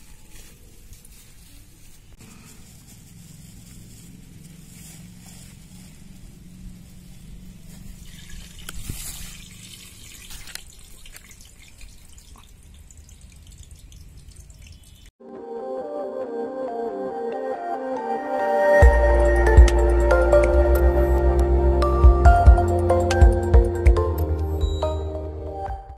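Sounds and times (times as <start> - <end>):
small clicks and drip-like ticks: 9.6 - 15.1
soft ambient music: 15.2 - 25.9.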